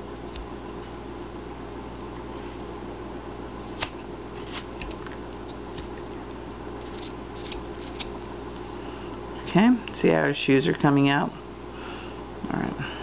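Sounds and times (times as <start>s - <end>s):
low background hum: 0.0s - 13.0s
knife cutting wood chips: 6.8s - 8.2s.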